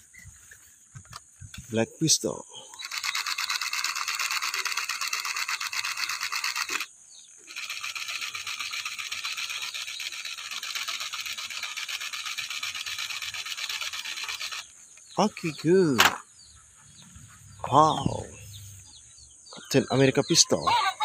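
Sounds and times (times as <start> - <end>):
toy pistol buzzing rattle: 2.7 - 15.2.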